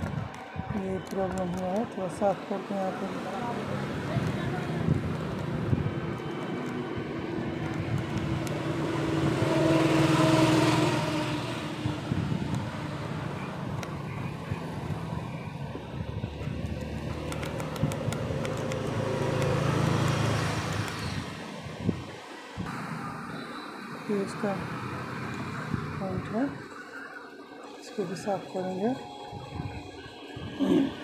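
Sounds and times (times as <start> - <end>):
vehicle engine running: 2.5 - 22.1.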